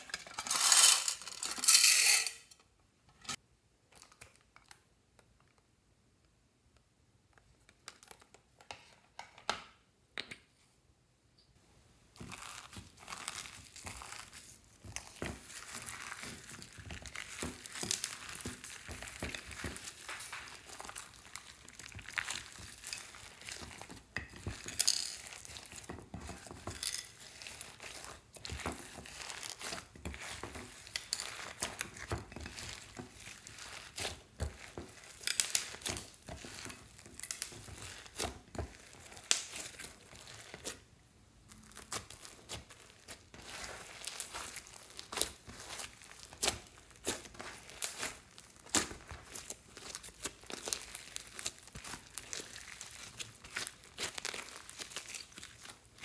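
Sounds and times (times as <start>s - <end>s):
slime crackling and squishing: 12.1s - 56.0s.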